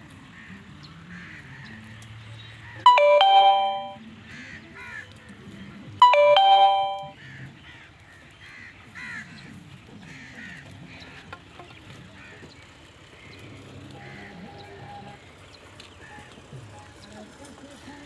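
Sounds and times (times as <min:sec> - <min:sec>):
bell-like chime: 0:02.9 - 0:04.0, 0:06.0 - 0:07.1.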